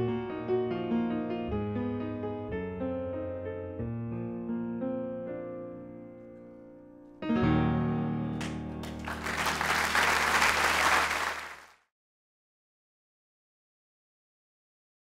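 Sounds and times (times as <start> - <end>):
audience applause: 8.4 - 11.8.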